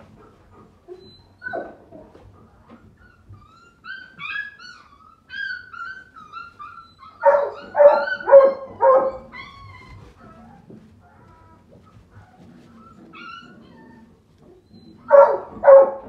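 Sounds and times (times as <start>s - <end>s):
puppies whining and squealing: 0.0s - 16.0s
puppy high-pitched yips: 0.9s - 1.8s, 3.0s - 10.6s, 12.7s - 16.0s.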